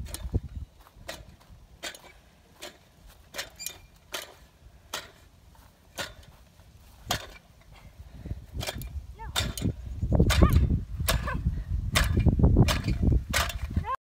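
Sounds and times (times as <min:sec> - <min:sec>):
wind buffeting microphone: 0:00.0 - 0:02.1, 0:06.1 - 0:14.0.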